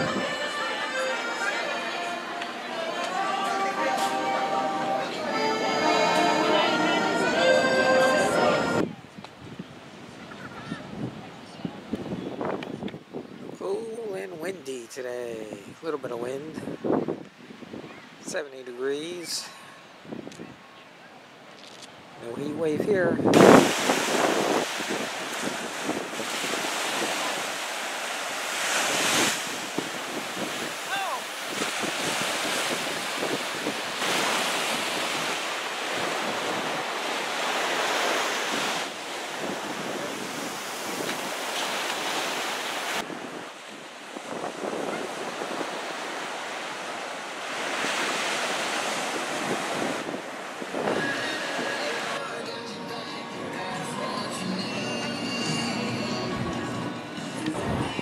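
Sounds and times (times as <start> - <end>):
wind buffeting microphone: 8.8 - 13.6, 16.5 - 18.2, 22.3 - 41.8, 42.9 - 46.9, 47.5 - 51.2, 57.5 - 58.0
ocean surf breaking on beach: 22.1 - 52.3.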